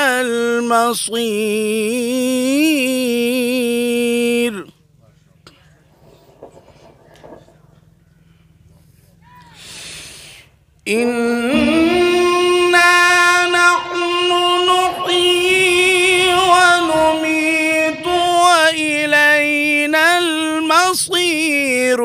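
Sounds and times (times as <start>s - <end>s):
man reciting melodically: 0.0s - 5.8s, 10.8s - 22.0s.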